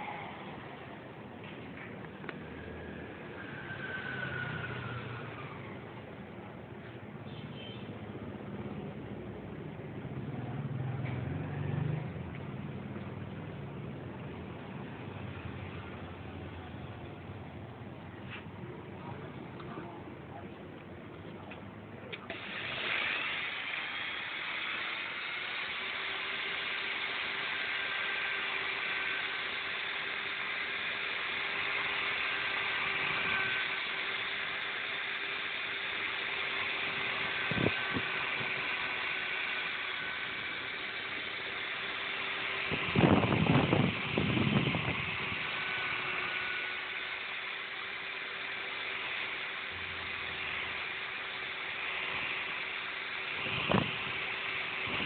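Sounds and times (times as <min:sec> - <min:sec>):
electric drill running: 0:02.2 - 0:05.9, 0:22.3 - 0:55.0.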